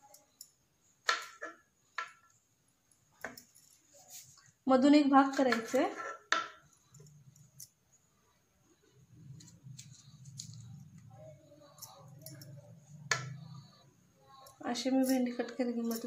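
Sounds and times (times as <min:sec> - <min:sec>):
faint low hum: 0:06.6 - 0:16.0.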